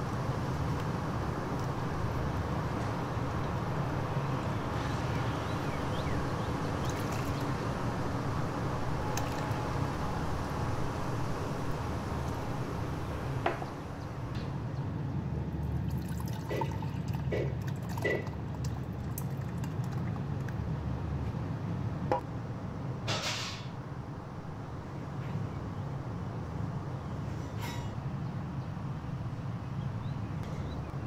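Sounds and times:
liquid pouring: 15.7s - 20.6s.

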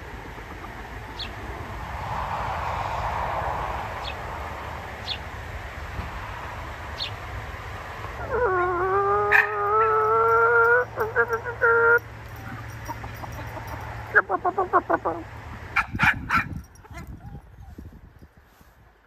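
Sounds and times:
dog howling: 8.2s - 12.1s.

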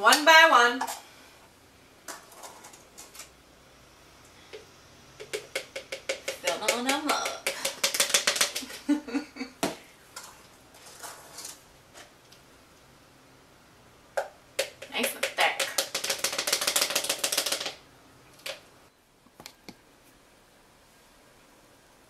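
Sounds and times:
utensil clicking against container: 5.2s - 8.7s.

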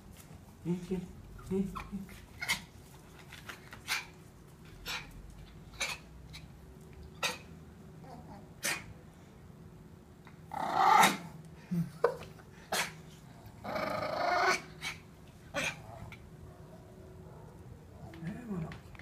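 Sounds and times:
dogs sniffing and snorting: 1.7s - 7.6s
dog growling: 10.5s - 11.4s, 12.8s - 16.2s.

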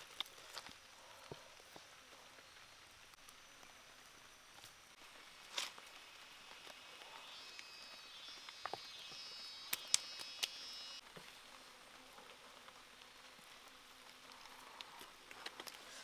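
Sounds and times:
insect chirring: 0.0s - 16.0s
sharp clicks: 9.6s - 10.7s.

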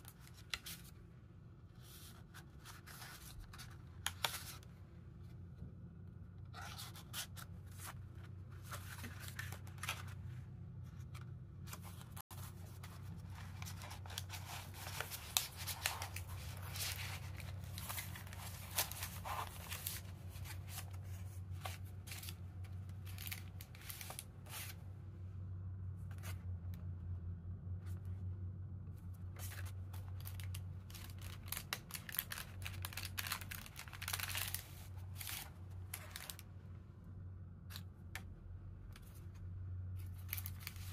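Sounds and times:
low steady hum: 0.0s - 40.9s
paper and card rustling: 1.8s - 4.7s, 6.5s - 24.8s, 29.3s - 36.4s, 40.0s - 40.9s.

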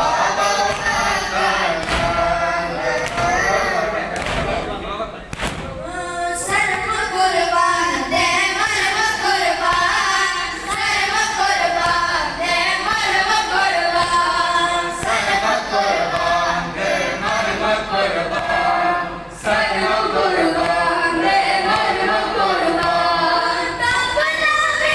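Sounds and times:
boys singing in unison: 0.0s - 4.7s, 5.7s - 24.9s.

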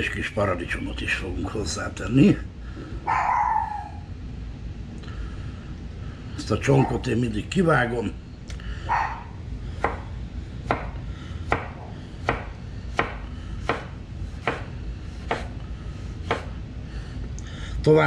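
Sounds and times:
knife chopping on cutting board: 9.8s - 10.0s, 10.6s - 15.5s, 16.2s - 16.5s.

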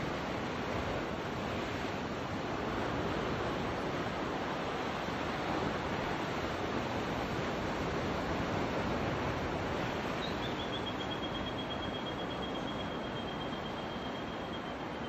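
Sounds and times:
ocean surf on shore: 0.0s - 15.0s
wind: 0.0s - 15.0s.

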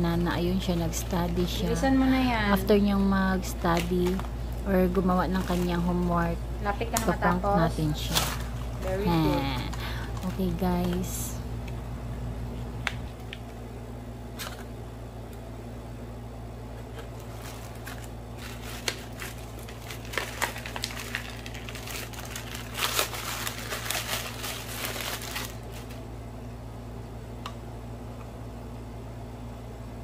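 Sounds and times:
crinkling and rustling handling: 0.0s - 11.4s, 16.7s - 26.0s
steady low hum: 0.0s - 30.0s.

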